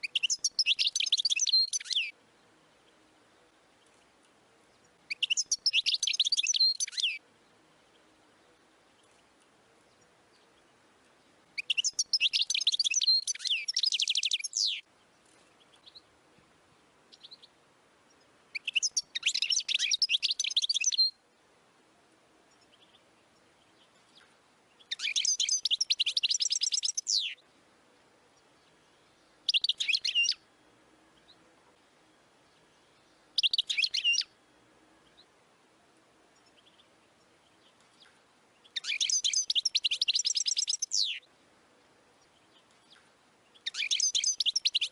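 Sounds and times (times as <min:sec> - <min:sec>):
goldfinch singing: 0:00.0 - 0:02.2, 0:04.8 - 0:07.2, 0:11.6 - 0:14.9, 0:17.1 - 0:21.2, 0:22.5 - 0:27.4, 0:29.1 - 0:30.4, 0:32.8 - 0:34.4, 0:36.4 - 0:41.3, 0:42.2 - 0:44.9.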